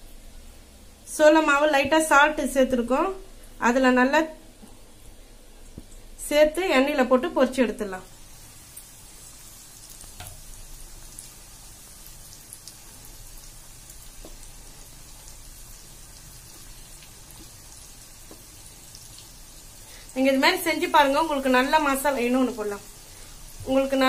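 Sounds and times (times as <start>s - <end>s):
chicken deep-frying in oil: 7.0s - 24.0s.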